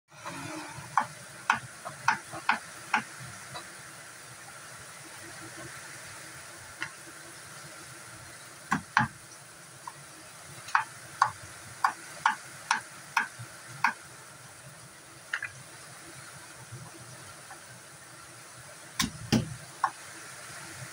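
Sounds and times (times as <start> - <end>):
knife chopping on wooden board: 19.0 - 19.6.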